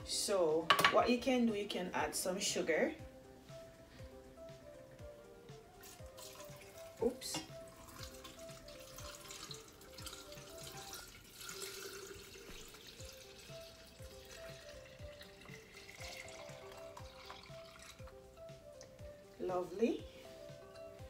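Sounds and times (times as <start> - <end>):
background music with beat: 1.9 - 11.2, 12.3 - 21.0
liquid pouring into pitcher: 5.8 - 18.2.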